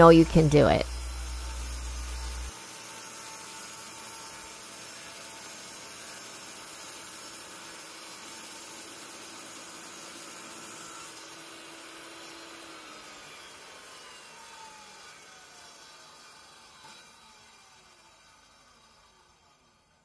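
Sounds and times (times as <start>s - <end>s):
low hum: 0.0s - 2.5s.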